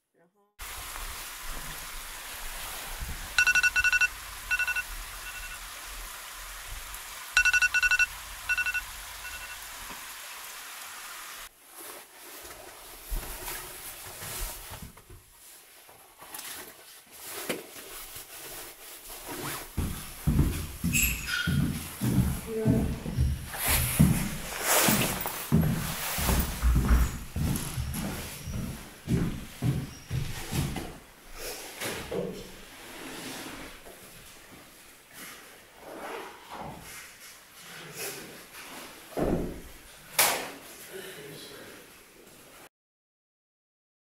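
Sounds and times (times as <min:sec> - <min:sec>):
electronic alarm beeping: 0:03.4 - 0:05.6, 0:07.4 - 0:09.7
rustling: 0:11.5 - 0:20.8.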